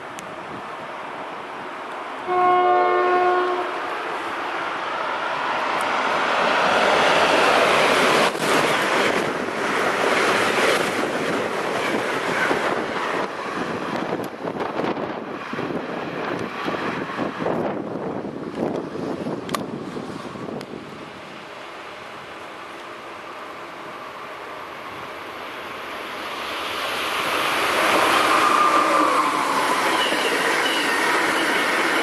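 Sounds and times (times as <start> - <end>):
train passing at speed: 0.0 - 32.0
train horn blast: 2.2 - 4.0
rough clatter of train cars: 7.2 - 17.8.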